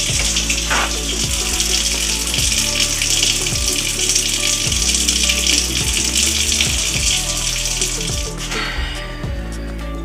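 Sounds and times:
faucet running: 0:00.0 - 0:08.7.

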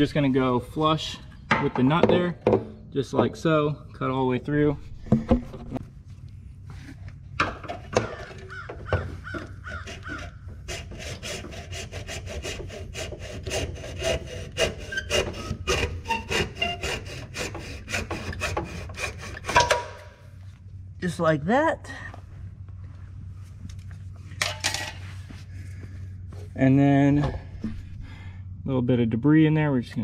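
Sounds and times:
hacksaw cutting plastic: 0:07.9 - 0:20.0
saw stroke squeaks: 0:14.8 - 0:17.1.

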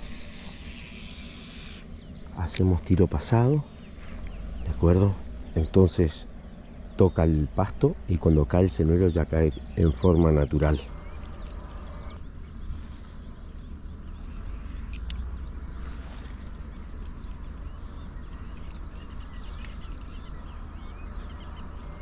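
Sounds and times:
faint chirps: 0:00.0 - 0:22.0
low rumble: 0:00.0 - 0:22.0
sharp click: 0:02.4 - 0:02.8.

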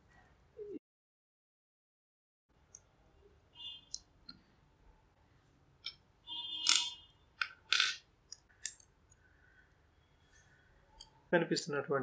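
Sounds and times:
metal clamp clicks and scrapes: 0:06.6 - 0:08.8.

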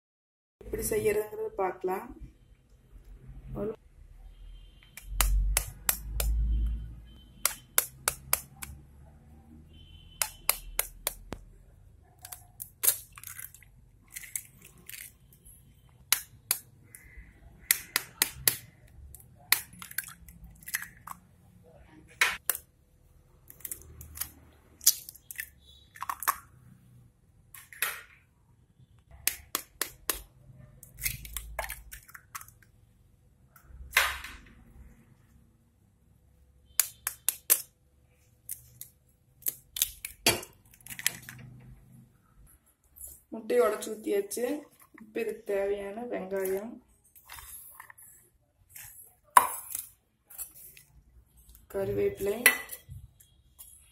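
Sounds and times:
eggs cracked on metal bowl: 0:07.4 - 0:08.8, 0:12.2 - 0:15.1, 0:16.0 - 0:21.2, 0:23.5 - 0:26.5, 0:29.2 - 0:32.7, 0:36.8 - 0:37.7, 0:39.4 - 0:41.4.

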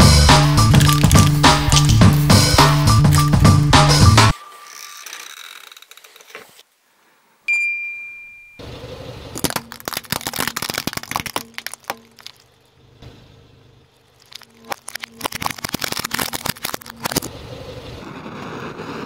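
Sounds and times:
glass baubles crunching under tyre: 0:00.6 - 0:02.2, 0:09.4 - 0:12.7, 0:14.1 - 0:17.3
bright ding: 0:07.5 - 0:08.6.

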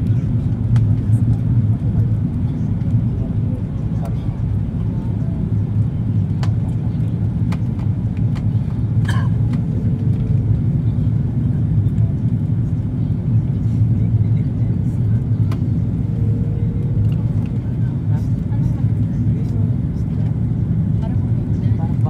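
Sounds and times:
jet engines rumbling in cabin: 0:00.0 - 0:22.0.

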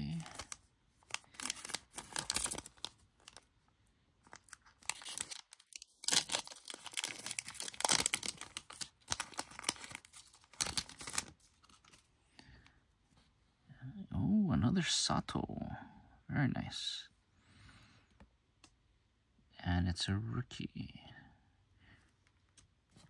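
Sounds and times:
plastic wrapper tearing and crinkling: 0:00.0 - 0:03.5, 0:04.2 - 0:12.0.

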